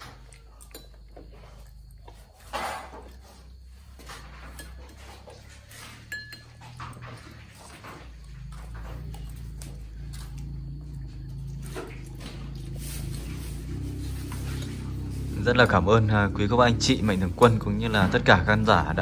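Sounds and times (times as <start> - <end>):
spoons clinking on bowls: 4.4 - 7.3.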